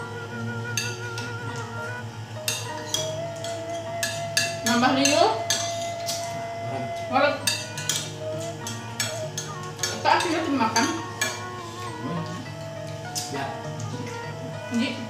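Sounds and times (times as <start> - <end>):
background music: 0.0 - 15.0
spoons and plates clinking: 2.5 - 6.4, 7.4 - 14.2.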